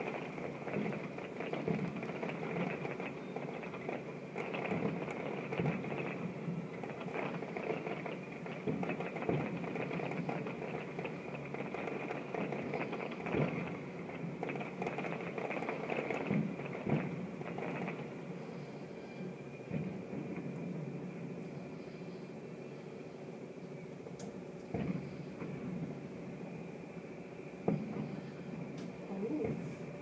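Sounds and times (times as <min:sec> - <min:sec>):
fireworks bangs: 0:00.0 - 0:18.6, 0:24.7 - 0:26.0, 0:27.6 - 0:28.7
fireworks crackling and popping: 0:00.0 - 0:22.0, 0:24.1 - 0:30.0.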